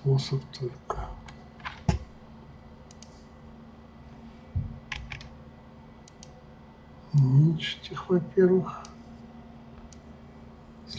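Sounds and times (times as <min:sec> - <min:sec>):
faint steady hum: 0:00.0 - 0:10.9
keyboard and mouse clicks: 0:02.9 - 0:03.1, 0:04.9 - 0:05.3, 0:06.0 - 0:06.4
dull low thump: 0:04.6 - 0:04.8.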